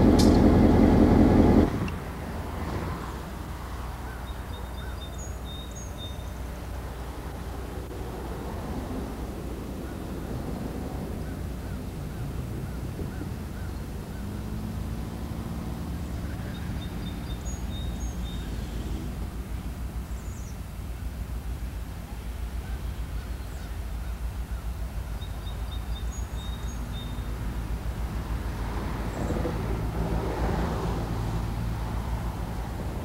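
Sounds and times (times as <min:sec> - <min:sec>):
train wheel noise: 0:00.0 - 0:02.6
locomotive engine rumbling: 0:00.0 - 0:33.0.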